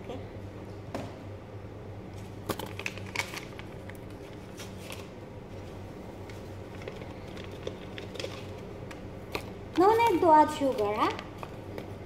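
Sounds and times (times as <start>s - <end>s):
paper sachets rustling: 2.5s - 4.0s.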